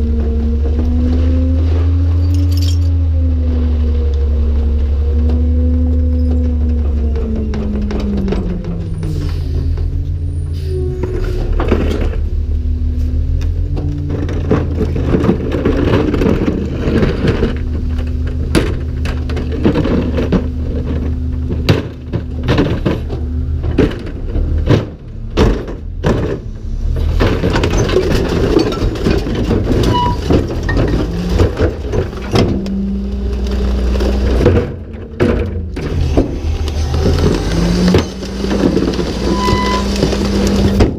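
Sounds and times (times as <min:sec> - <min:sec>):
garbage truck engine running: 0:00.0 - 0:40.9
cart banging: 0:13.5 - 0:40.9
bottles clattering into hopper: 0:27.1 - 0:32.6.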